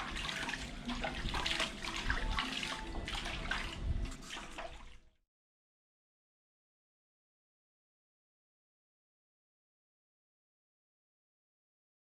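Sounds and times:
water splashing in a basin: 0:00.0 - 0:05.2.

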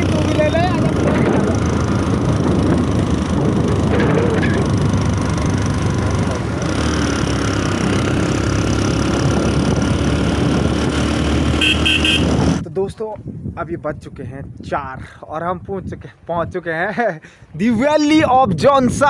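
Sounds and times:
motorcycle engine running: 0:00.0 - 0:12.6
wind on microphone: 0:00.0 - 0:16.8, 0:17.4 - 0:19.0.

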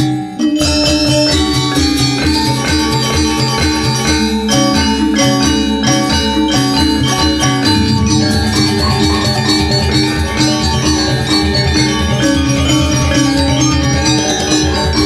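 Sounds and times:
metallophones in interlocking patterns: 0:00.0 - 0:15.0
kettle gongs and deep strokes: 0:04.5 - 0:14.0.

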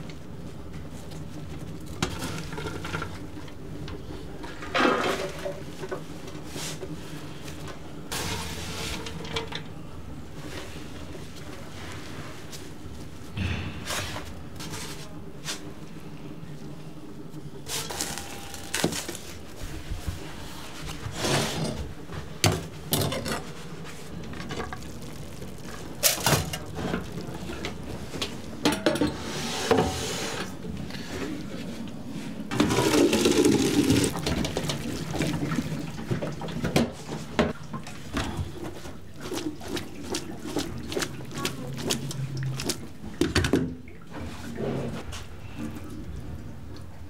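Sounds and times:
metal trays and pots clattering: 0:21.1 - 0:23.6, 0:25.9 - 0:30.0
liquid pouring and splashing: 0:24.3 - 0:28.1, 0:32.6 - 0:36.7, 0:38.8 - 0:44.4.

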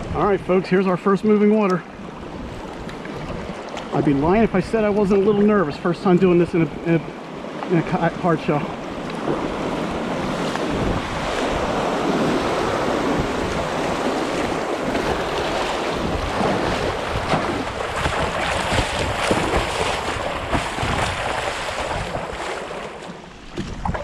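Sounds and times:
water splashing against kayak: 0:00.8 - 0:24.0.

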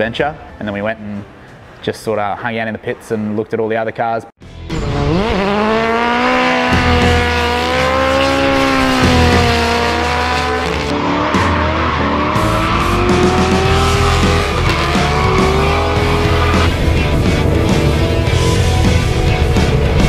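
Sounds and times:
background music with bass beat: 0:04.4 - 0:20.0
car engines at high revs: 0:04.8 - 0:19.9
tyres squealing: 0:11.9 - 0:16.7.

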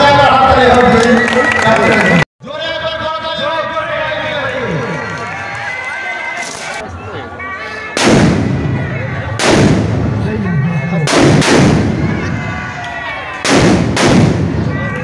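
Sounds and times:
loud firework bangs: 0:08.0 - 0:10.2, 0:11.1 - 0:12.4, 0:13.4 - 0:14.7.

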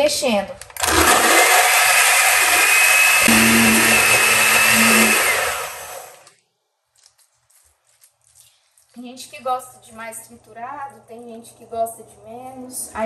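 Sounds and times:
blender motor running: 0:00.8 - 0:06.3.

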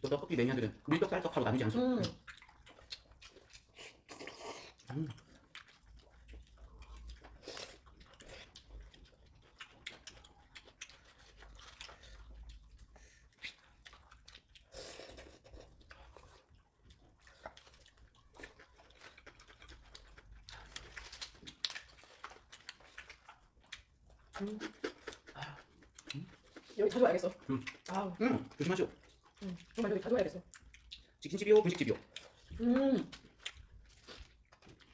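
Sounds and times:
people chewing food: 0:00.0 - 0:34.9.

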